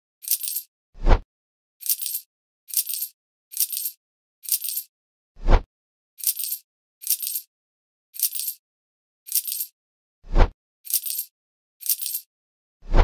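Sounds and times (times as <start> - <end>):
casino chips clinking: 0.2 - 0.6, 1.8 - 4.9, 6.2 - 7.5, 8.2 - 8.6, 9.3 - 9.7, 10.9 - 12.2.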